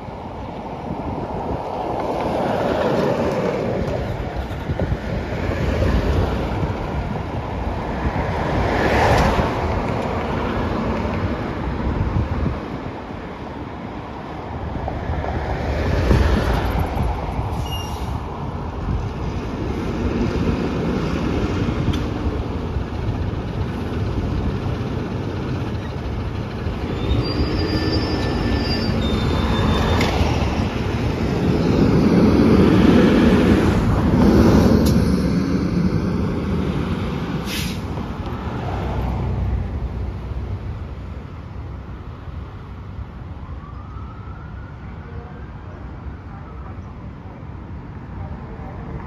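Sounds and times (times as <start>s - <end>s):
diesel engine rumble: 16.1s - 43.3s.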